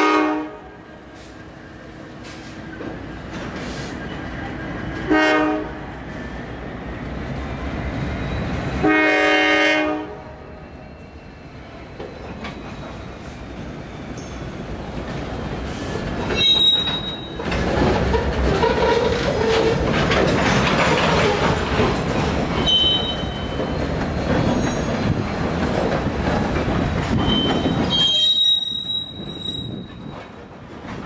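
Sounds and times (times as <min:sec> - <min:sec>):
freight train rumbling past: 0:00.0 - 0:31.0
train wheel squeals: 0:07.9 - 0:08.8, 0:10.5 - 0:14.6, 0:16.3 - 0:19.8, 0:22.5 - 0:25.6, 0:27.0 - 0:30.4.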